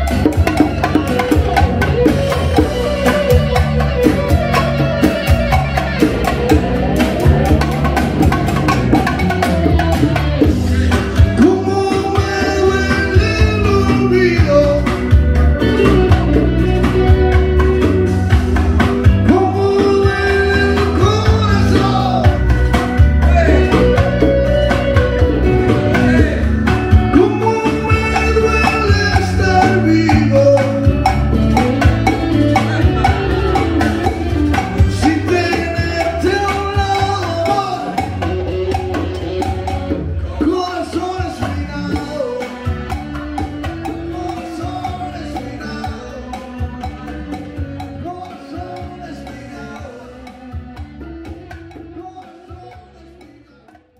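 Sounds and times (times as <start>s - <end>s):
live band playing: 0.0s - 53.9s
person singing: 0.0s - 53.9s.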